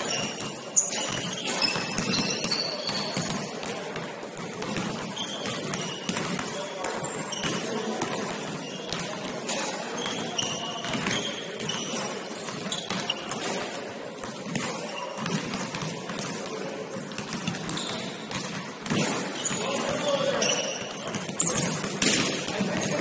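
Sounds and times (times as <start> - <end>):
shoe squeaks: 0.0 - 3.5, 5.0 - 7.8, 8.4 - 13.4, 17.4 - 18.3, 19.2 - 21.7
players' voices: 0.0 - 23.0
basketball bouncing: 0.1 - 16.4, 17.1 - 23.0.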